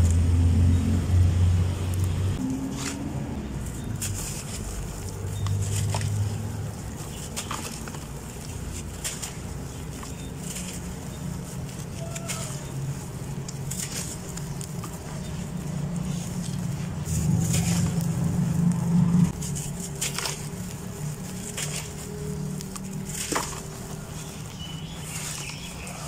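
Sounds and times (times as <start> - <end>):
dry dirt crunching by hand: 1.9 - 26.0
steady low hum: 12.6 - 26.0.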